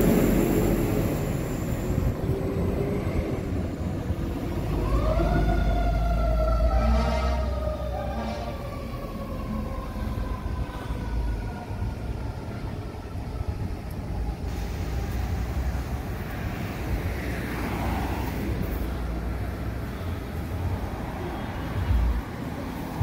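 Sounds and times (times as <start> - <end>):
fire engine siren wailing: 0.0 - 15.8
traffic rumble: 0.0 - 23.0.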